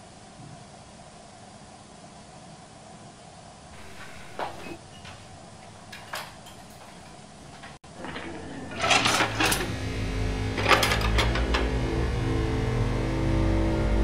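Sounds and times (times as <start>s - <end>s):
cutlery rattling in plastic tray: 3.8s - 9.8s
wooden drawer pulled open: 3.8s - 9.8s
low film score drone: 8.0s - 14.0s.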